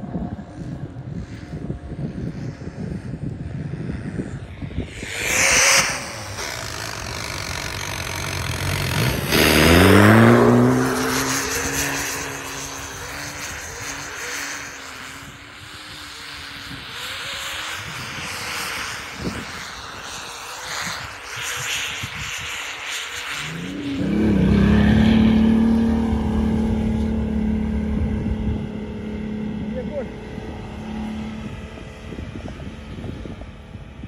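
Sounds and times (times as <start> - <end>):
rush of noise: 0.0 - 34.0
diesel engine revving hard: 5.2 - 13.2, 23.9 - 30.3.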